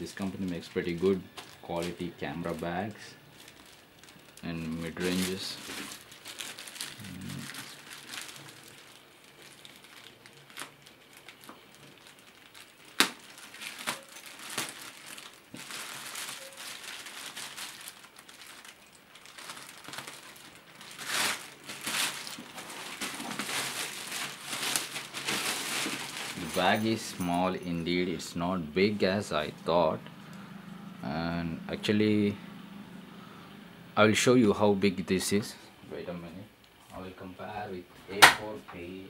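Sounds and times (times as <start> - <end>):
plastic bag crinkling: 0.0 - 30.4.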